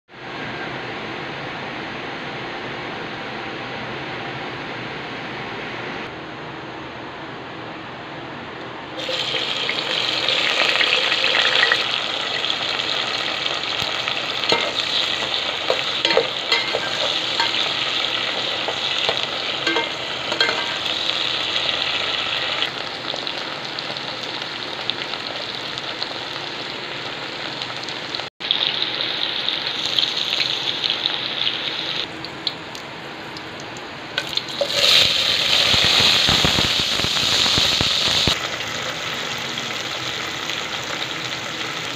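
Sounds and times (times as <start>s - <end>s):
okra sizzling in hot oil: 9.0s - 32.1s, 34.2s - 41.9s.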